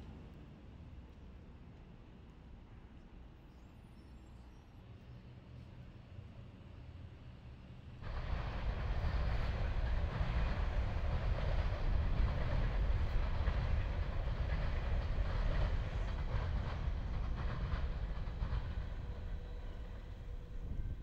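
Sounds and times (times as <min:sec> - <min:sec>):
freight train rumbling over bridge: 0:05.0 - 0:21.0
train wheel clatter: 0:08.0 - 0:21.0.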